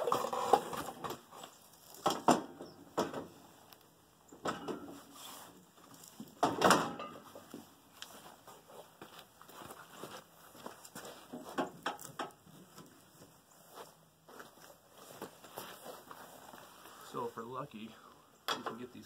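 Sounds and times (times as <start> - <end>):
metal hitch scraping over concrete: 0.0 - 2.8
metal hitch clunking against frame: 4.4 - 5.1, 6.3 - 7.5.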